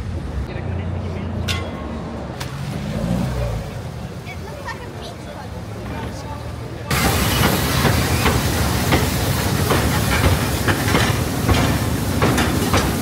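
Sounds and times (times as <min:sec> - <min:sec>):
steam hissing: 0:06.9 - 0:13.0.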